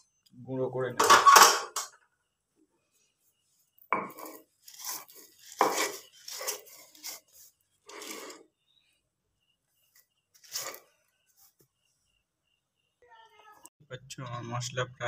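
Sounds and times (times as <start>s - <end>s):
stone grinder crunching spices: 4.0s - 8.4s.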